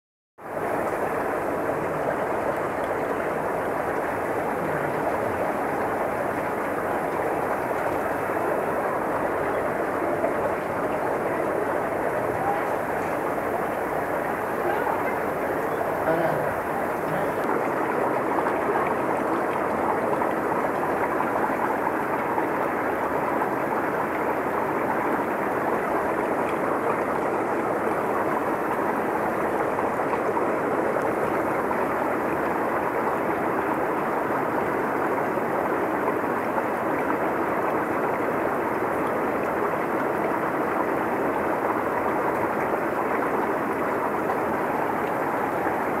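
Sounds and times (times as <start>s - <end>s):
running water rushing: 0.4s - 46.0s.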